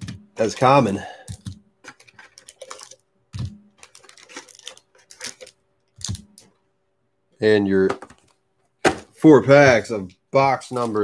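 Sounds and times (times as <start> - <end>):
foil packs clicking and crinkling: 0.0 - 6.5.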